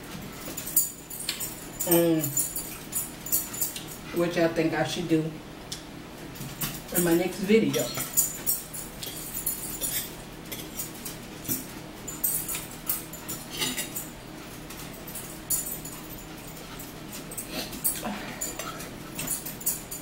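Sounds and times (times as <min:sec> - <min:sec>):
cutlery scraping on plate: 0:13.5 - 0:14.0.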